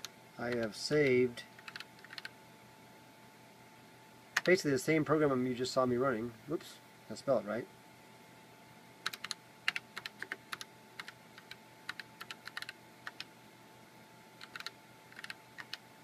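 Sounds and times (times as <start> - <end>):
typing on computer keyboard: 1.6 - 2.3, 9.0 - 13.3, 14.4 - 15.8.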